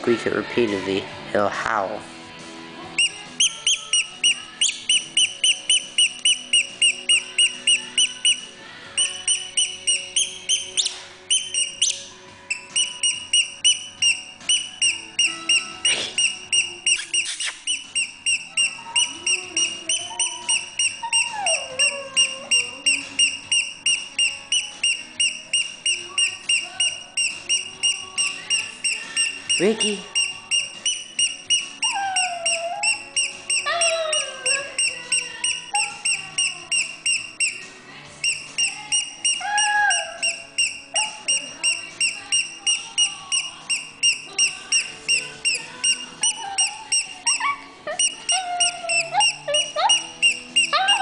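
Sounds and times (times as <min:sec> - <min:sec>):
squeaky toy squeaking: 0:02.9 - 0:51.0
dog howling faintly: 0:18.3 - 0:23.6, 0:31.7 - 0:37.6, 0:38.6 - 0:43.8, 0:44.7 - 0:51.0.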